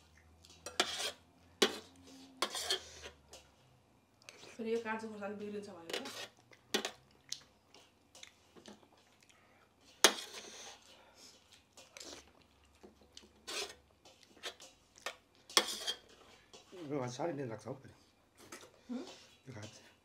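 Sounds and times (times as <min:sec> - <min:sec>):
chewing: 0:00.0 - 0:00.7, 0:06.2 - 0:13.4, 0:14.0 - 0:16.8.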